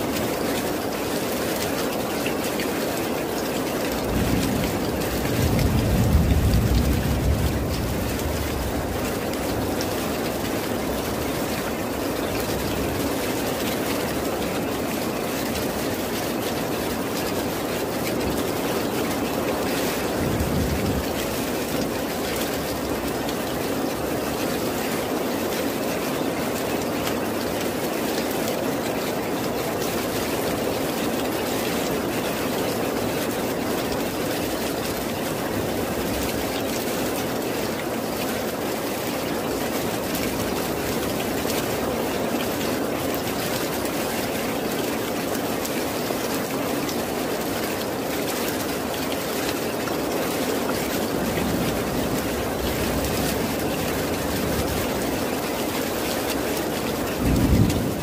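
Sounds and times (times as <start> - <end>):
steady rain: 0.0 - 58.0
distant thunder rumble: 3.9 - 11.5, 18.2 - 23.5, 56.4 - 58.0.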